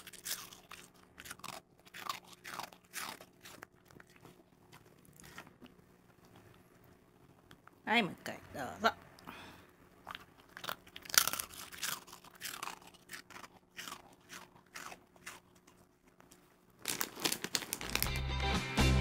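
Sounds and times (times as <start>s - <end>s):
dog crunching hard treat: 0.0s - 5.6s, 10.0s - 18.2s.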